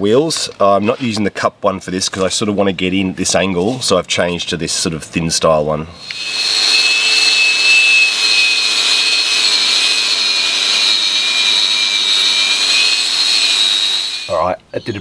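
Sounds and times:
angle grinder wire wheel scouring steel: 0:06.0 - 0:14.4.

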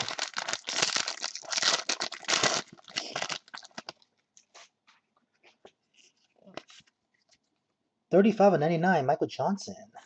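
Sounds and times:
foil wrapper crinkling: 0:00.0 - 0:04.1.

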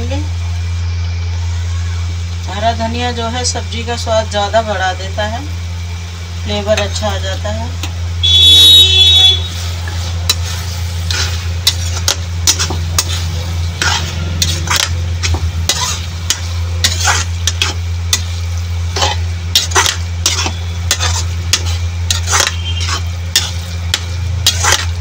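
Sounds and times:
light sizzle: 0:00.0 - 0:25.0
steady low hum: 0:00.0 - 0:25.0
utensil scraping a pan: 0:09.5 - 0:25.0.

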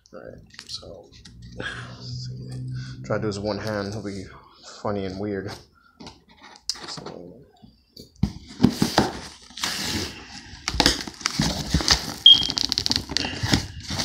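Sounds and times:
packing tape ripping: 0:10.7 - 0:13.4.

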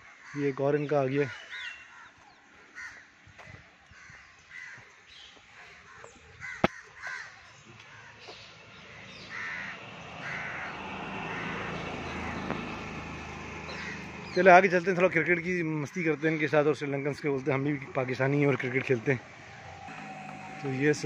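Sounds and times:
crows cawing: 0:00.0 - 0:00.7, 0:01.3 - 0:05.0, 0:05.6 - 0:08.4, 0:09.0 - 0:13.0, 0:13.6 - 0:14.4, 0:16.0 - 0:16.7
low engine hum: 0:08.4 - 0:15.3, 0:17.8 - 0:21.0.

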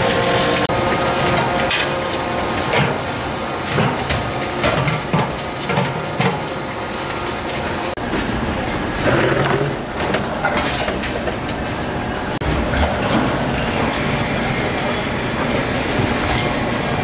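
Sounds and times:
steady machine hum: 0:00.0 - 0:10.4.

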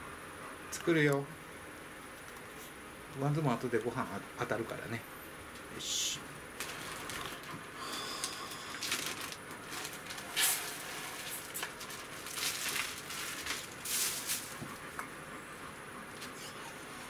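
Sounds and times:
plastic bag rustling: 0:06.5 - 0:14.8.

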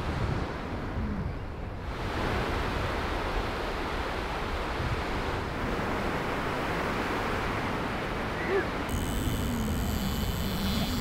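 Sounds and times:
wind: 0:00.0 - 0:11.0.

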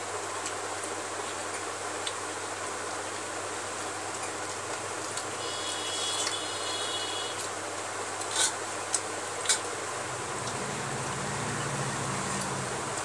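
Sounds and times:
background hiss: 0:05.3 - 0:08.4.

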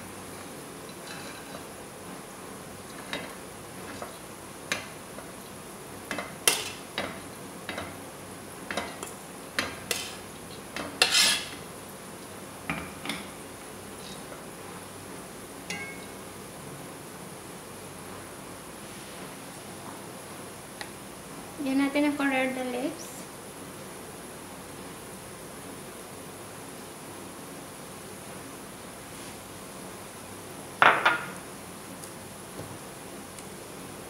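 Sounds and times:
spoon knocking against pot: 0:15.7 - 0:16.1.

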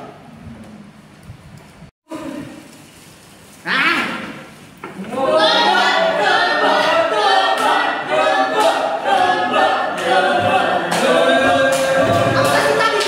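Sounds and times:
a cappella voices singing in harmony: 0:04.9 - 0:13.0.

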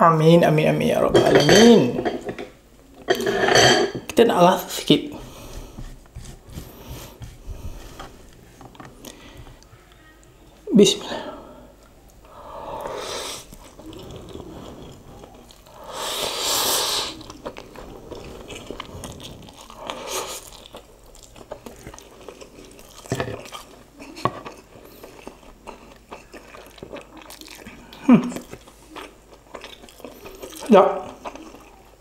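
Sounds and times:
person slurping noodles: 0:12.5 - 0:20.5
wet chewing with small clicks: 0:17.2 - 0:32.0.

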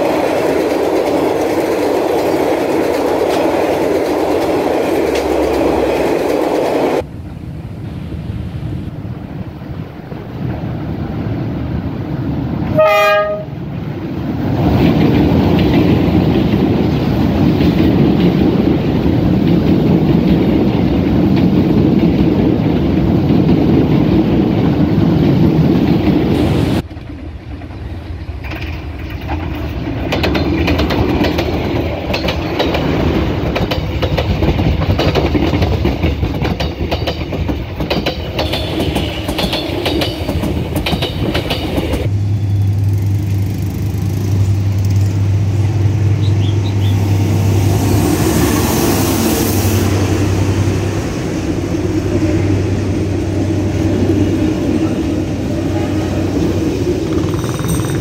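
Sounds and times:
wheels clattering on rails: 0:00.0 - 0:07.1, 0:10.0 - 0:58.0
train rumbling past: 0:00.0 - 0:58.0
train horn blast: 0:12.7 - 0:13.7.

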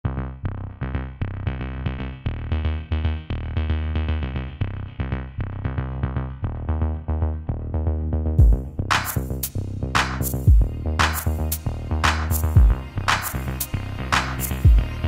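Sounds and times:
bass line: 0:00.0 - 0:15.0
pulsing synthesizer notes: 0:00.0 - 0:15.0
drum beat: 0:08.4 - 0:13.5, 0:14.2 - 0:14.9.

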